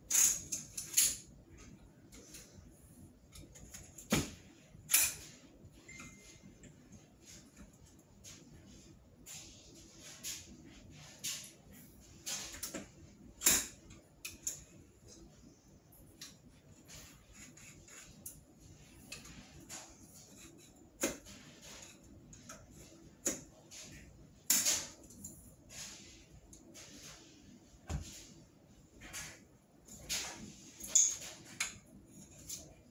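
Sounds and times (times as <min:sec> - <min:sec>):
rustling scrape: 0:16.7 - 0:23.1, 0:25.5 - 0:29.4.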